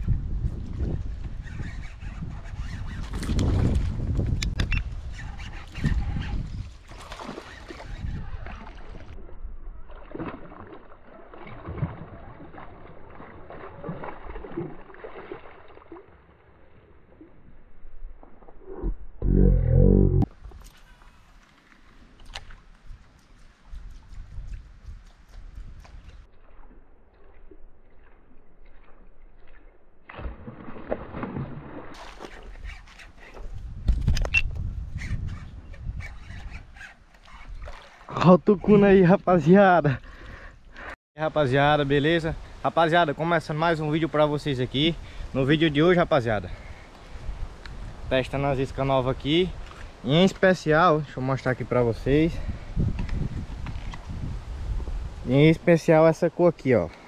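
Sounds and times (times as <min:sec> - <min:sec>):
water sloshing and splashing: 0:05.4 - 0:18.8, 0:21.4 - 0:22.8, 0:26.1 - 0:33.7, 0:36.2 - 0:39.3
fish thrashing and splashing water: 0:06.8 - 0:09.2, 0:09.8 - 0:16.4, 0:30.1 - 0:33.1, 0:37.5 - 0:38.1.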